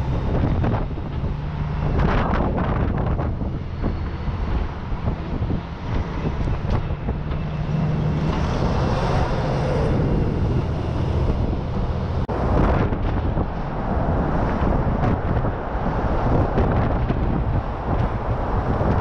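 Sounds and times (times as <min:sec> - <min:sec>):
road rumble: 0:00.0 - 0:19.0
truck engine drone: 0:00.0 - 0:19.0
wind buffeting microphone: 0:00.0 - 0:19.0.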